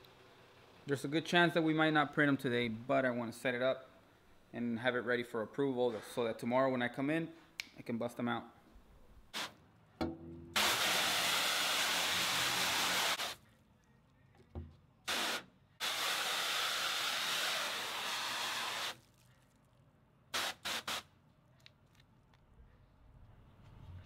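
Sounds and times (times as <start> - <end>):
hose water jet hissing on mesh: 10.6 - 13.4, 15.1 - 19.0.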